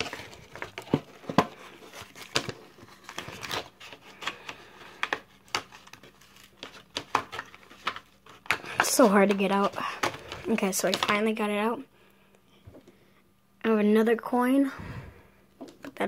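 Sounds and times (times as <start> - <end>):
plastic packaging crinkling: 0.0 - 11.3.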